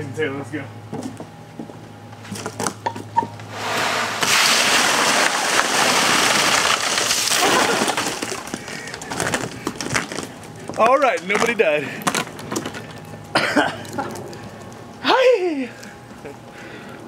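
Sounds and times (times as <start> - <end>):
water pouring and splashing: 3.6 - 8.5
ice chunks rattling: 4.2 - 10.4.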